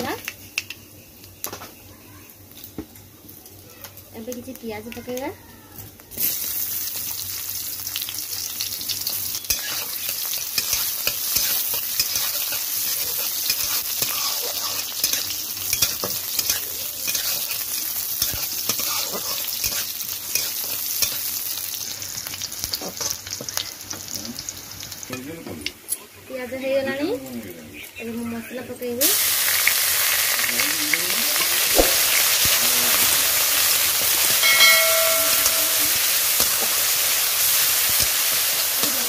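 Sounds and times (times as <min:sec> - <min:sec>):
onions sizzling in oil: 0:00.0 - 0:39.0
spatula scraping pan: 0:10.6 - 0:21.2.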